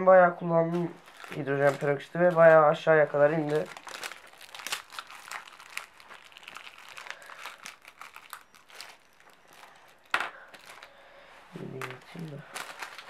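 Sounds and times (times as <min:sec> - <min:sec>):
plastic wrapping crinkling: 0:00.7 - 0:13.0.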